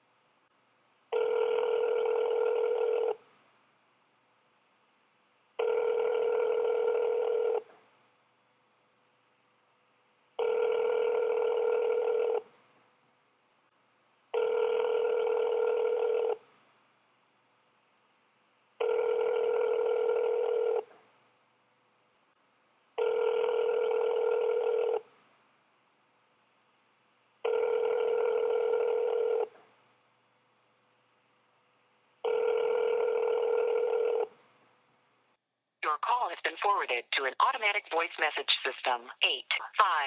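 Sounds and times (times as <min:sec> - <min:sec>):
telephone ringback tone: 0:01.1 - 0:03.2, 0:05.6 - 0:07.6, 0:10.4 - 0:12.4, 0:14.4 - 0:16.4, 0:18.8 - 0:20.8, 0:23.0 - 0:25.0, 0:27.4 - 0:29.5, 0:32.2 - 0:34.3.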